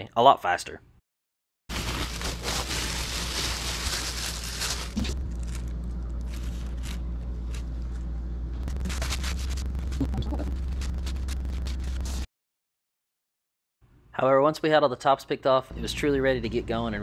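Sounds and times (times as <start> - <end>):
plastic bags crinkling: 1.7 - 7.7, 8.7 - 11.9
steady low hum: 1.8 - 12.3.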